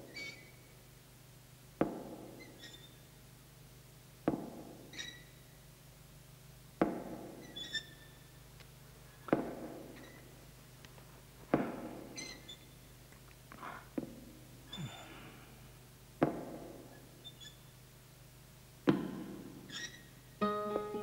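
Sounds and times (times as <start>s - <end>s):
brief high squeak: 0.1s - 0.5s, 2.4s - 3.0s, 4.9s - 5.3s, 7.4s - 8.1s, 10.0s - 10.3s, 12.2s - 12.7s, 17.2s - 17.6s, 19.7s - 20.1s.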